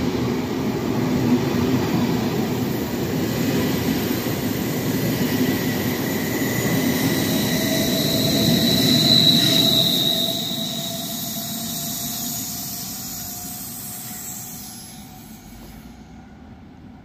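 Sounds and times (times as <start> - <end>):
high-pitched locomotive whine: 0.0 - 17.0
train wheels rolling on rails: 0.0 - 17.0.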